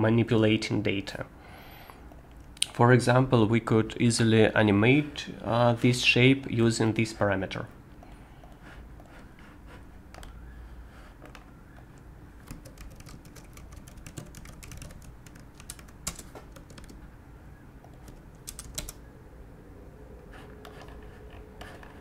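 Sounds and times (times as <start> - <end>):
low steady hum: 0.0 - 22.0
keyboard key clicks: 12.4 - 17.0.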